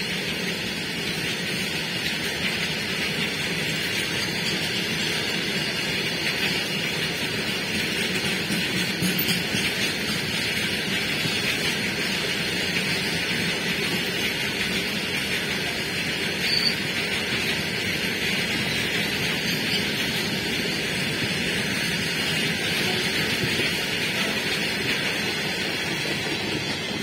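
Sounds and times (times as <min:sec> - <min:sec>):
train wheels running on rails: 0:00.0 - 0:27.0
high wheel squeal: 0:16.4 - 0:16.9.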